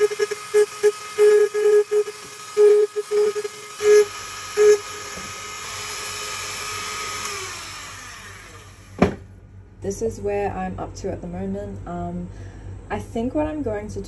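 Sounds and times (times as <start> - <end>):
rotary tool whining: 0.0 - 9.0.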